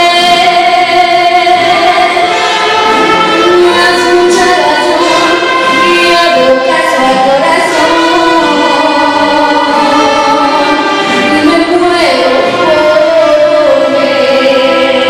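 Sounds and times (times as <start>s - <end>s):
girl singing into a microphone: 0.0s - 15.0s
mariachi ensemble violins and guitars: 0.0s - 15.0s.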